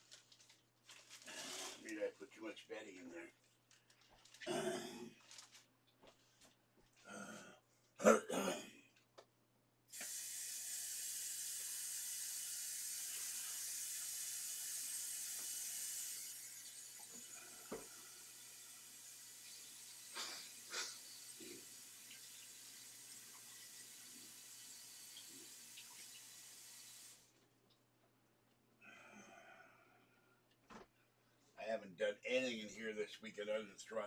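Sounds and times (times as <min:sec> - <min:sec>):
man coughing: 0:04.5 - 0:05.1, 0:08.0 - 0:08.8
tap water running: 0:09.9 - 0:27.4.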